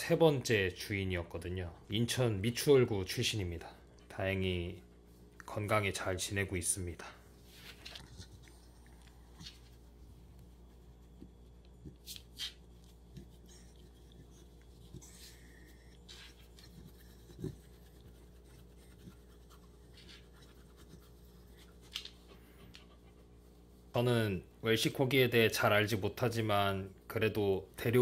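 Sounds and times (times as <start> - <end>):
low steady hum: 0.0 - 28.0
hand rubbing dog fur: 7.4 - 22.2.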